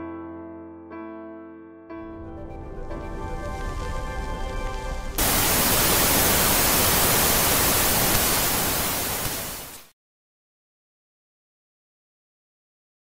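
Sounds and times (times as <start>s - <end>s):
television static hiss: 5.2s - 9.9s.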